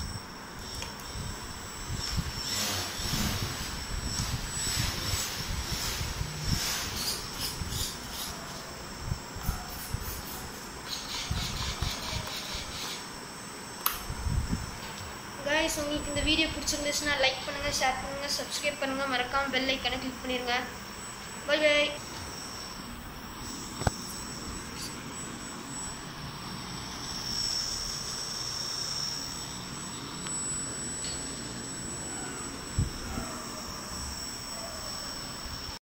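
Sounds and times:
toy plane motor whining: 0.0 - 13.2, 15.5 - 35.8
sharp click: 13.8 - 14.1.

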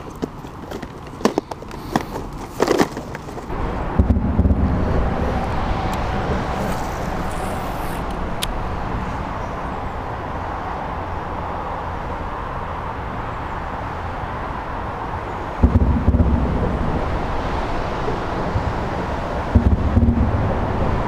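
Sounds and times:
distant road traffic: 0.0 - 21.0
wind on microphone: 3.5 - 10.2.

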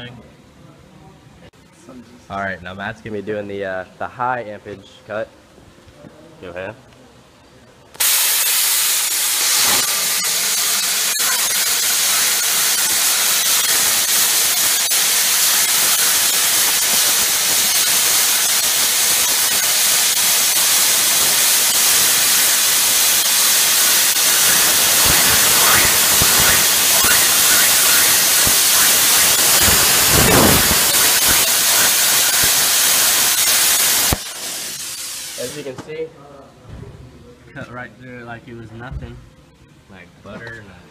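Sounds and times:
plasma cutter hissing: 8.0 - 35.7.

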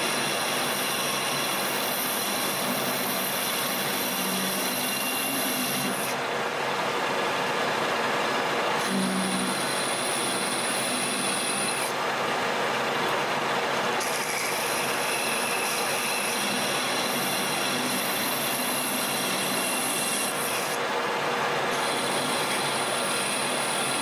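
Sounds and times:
metal lathe cutting hiss: 0.0 - 6.2, 8.7 - 12.0, 14.0 - 20.8, 21.6 - 24.0.

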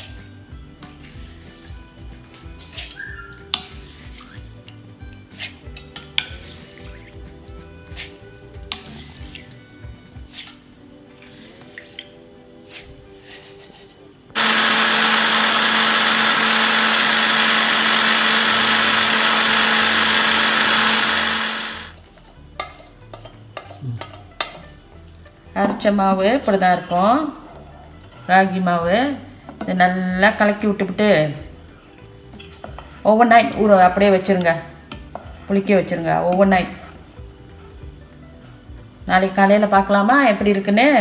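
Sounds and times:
mixer grinder running: 14.4 - 22.0.

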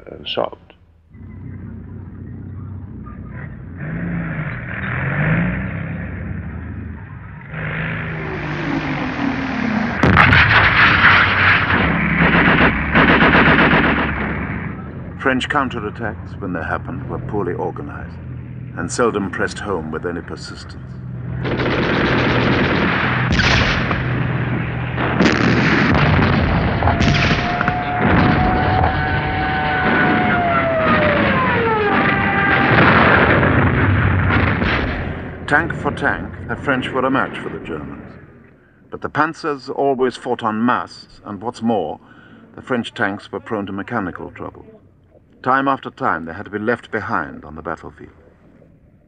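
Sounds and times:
tank engines revving: 0.0 - 49.0
steady whine: 6.4 - 39.1
sudden blasts: 7.5 - 38.4
artillery shells exploding: 8.2 - 16.7, 21.3 - 38.3.

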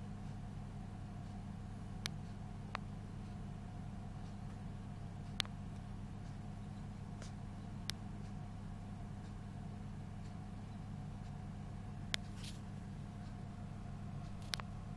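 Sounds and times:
incubator electrical hum: 0.0 - 14.9
sharp clicks: 5.2 - 6.4.

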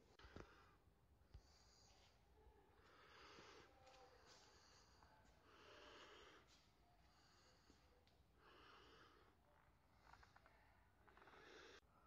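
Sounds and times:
soft breathy puffs: 0.0 - 12.0.

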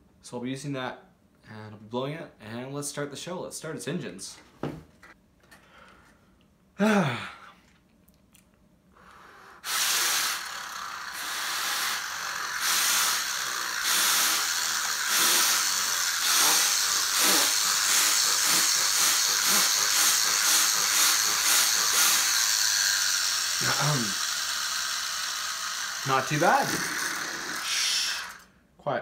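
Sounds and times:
air blown through turbine hissing: 9.5 - 28.5.

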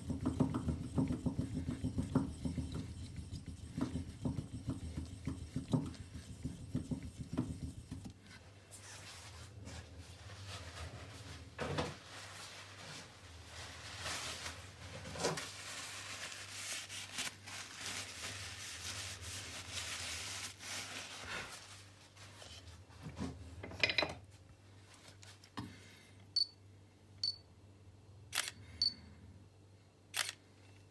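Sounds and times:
rubbing and handling noise: 0.0 - 23.5
camera shutter clicks: 30.2 - 30.4.

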